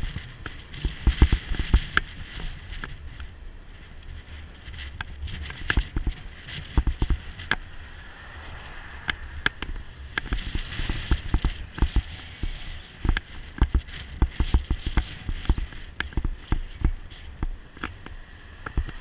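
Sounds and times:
low road rumble: 0:00.0 - 0:19.0
wind: 0:00.0 - 0:19.0
motorcycle passing: 0:06.1 - 0:13.0.

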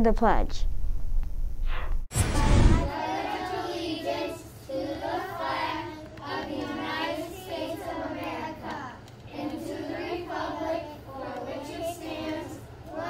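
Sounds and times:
children reciting in unison: 0:02.9 - 0:13.0.

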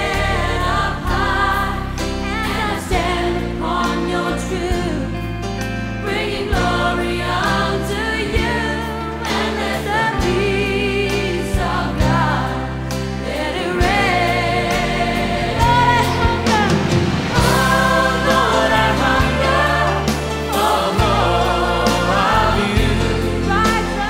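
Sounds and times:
gospel choir singing: 0:00.0 - 0:24.0
held bass notes: 0:09.8 - 0:24.0.

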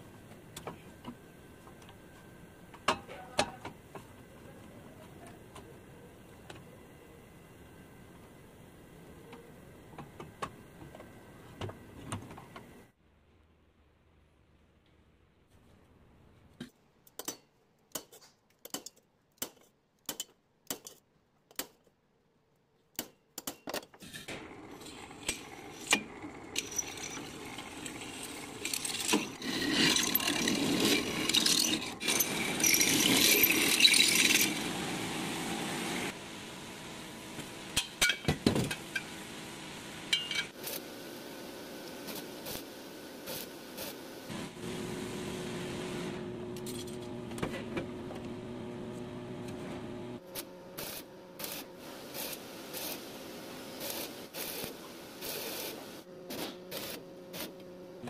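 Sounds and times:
angle grinder cutting steel: 0:24.7 - 0:34.8
drill boring through steel: 0:26.6 - 0:34.7.

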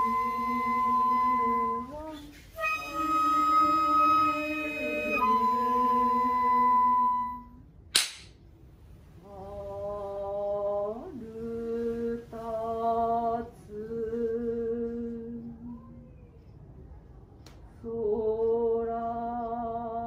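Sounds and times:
voices singing slow song: 0:00.0 - 0:07.6, 0:09.2 - 0:15.9, 0:17.8 - 0:20.0
sharp knock: 0:08.0 - 0:08.3.

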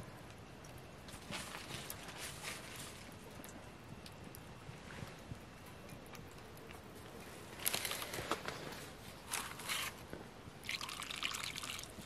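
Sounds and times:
dried vegetables rustling in bowl: 0:01.1 - 0:03.2, 0:07.5 - 0:10.1.

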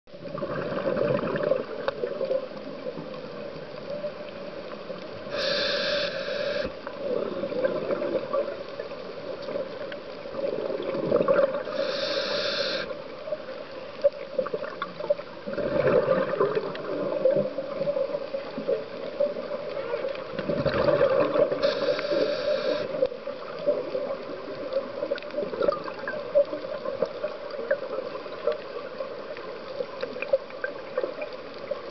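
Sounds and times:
gurgling exhaled bubbles: 0:00.2 - 0:02.5, 0:05.3 - 0:08.7, 0:10.3 - 0:12.8, 0:14.5 - 0:19.5, 0:20.2 - 0:23.0, 0:23.6 - 0:27.0
regulator inhalation hiss: 0:05.3 - 0:06.8, 0:11.7 - 0:12.9, 0:21.6 - 0:23.0.

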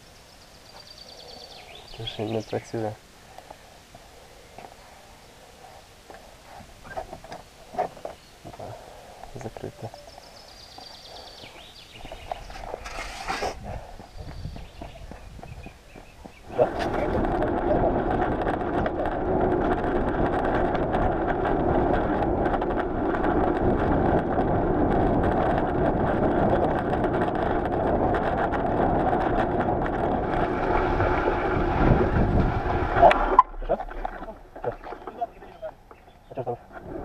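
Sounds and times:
bicycle tyre noise on road: 0:00.0 - 0:37.0
wind on microphone: 0:04.2 - 0:37.0.

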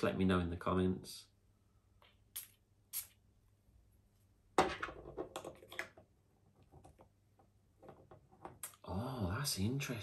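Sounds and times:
perfume atomizer spraying: 0:02.3 - 0:03.2.

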